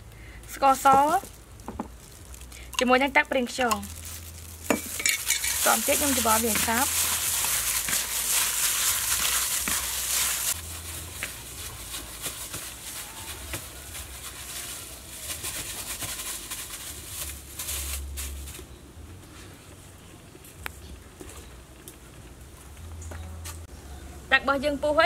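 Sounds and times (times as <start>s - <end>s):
outdoor background: 0.0s - 25.0s
meat squishing by hand: 5.5s - 16.5s.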